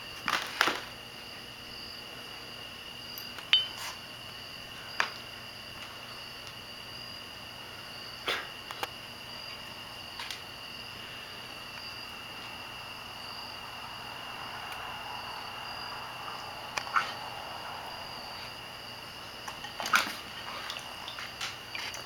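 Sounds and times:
water splashing softly: 19.4 - 22.0.

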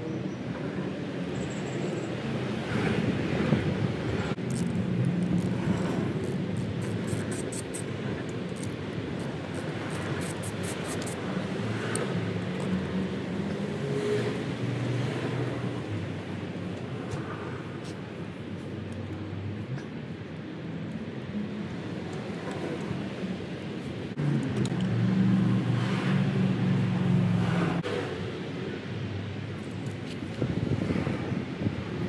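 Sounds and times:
ratchet wrench clicking: 4.4 - 11.2, 11.8 - 13.1.

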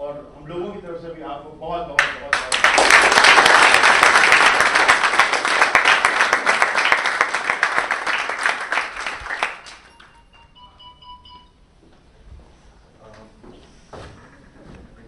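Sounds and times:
audience applauding: 2.0 - 10.2.

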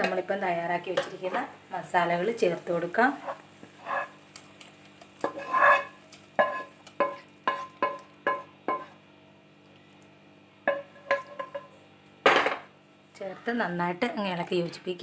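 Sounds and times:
spoon scraping pan: 3.1 - 4.3, 5.2 - 9.0, 10.7 - 11.7.

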